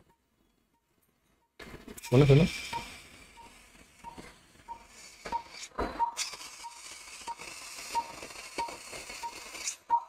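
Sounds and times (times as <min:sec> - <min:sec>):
patient monitor beeping: 0:00.0 - 0:10.0.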